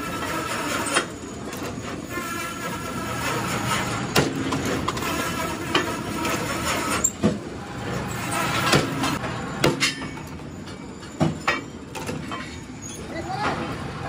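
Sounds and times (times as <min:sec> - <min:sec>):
metal-on-metal press strokes: 0:00.0 - 0:10.3.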